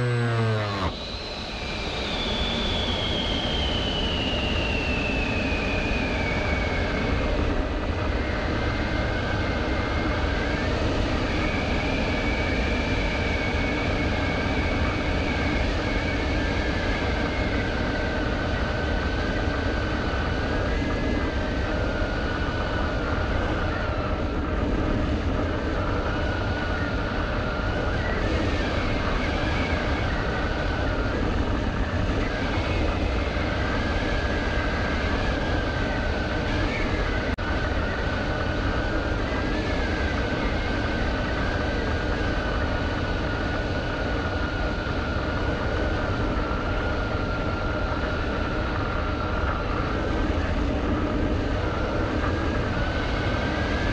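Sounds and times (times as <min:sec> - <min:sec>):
drone propellers whining: 0:00.0 - 0:07.2.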